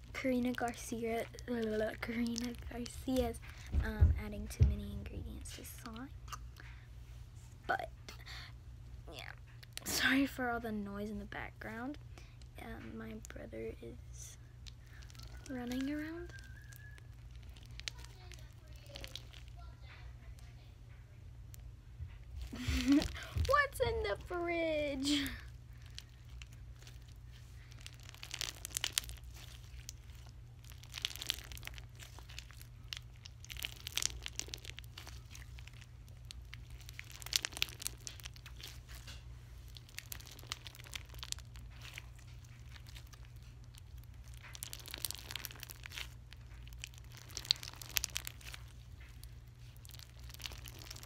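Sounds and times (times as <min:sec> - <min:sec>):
slime crackling and clicking: 0:00.4 - 0:04.8, 0:14.5 - 0:19.7, 0:25.0 - 0:51.0.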